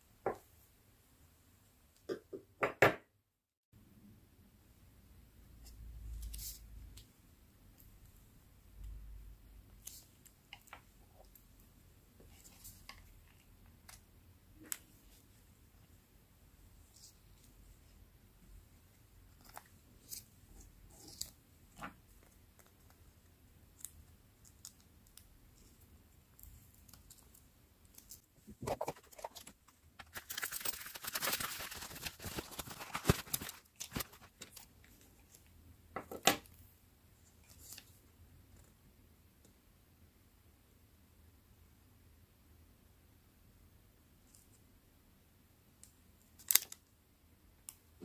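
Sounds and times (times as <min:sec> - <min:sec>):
paper rustling and scraping: 0:28.5 - 0:34.6.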